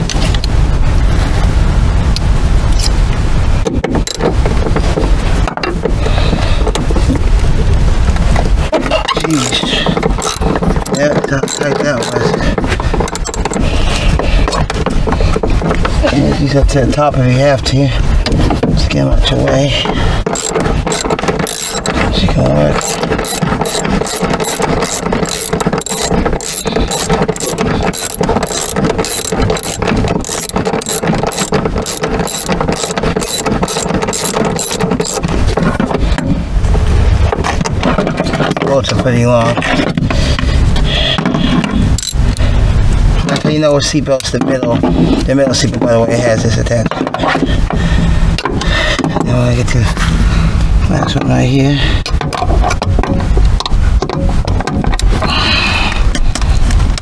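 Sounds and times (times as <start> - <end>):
handling noise: 0.0 - 57.0
ratchet wrench clicking: 4.0 - 4.2, 9.2 - 12.4, 13.0 - 13.7, 20.3 - 35.3, 42.0 - 42.3.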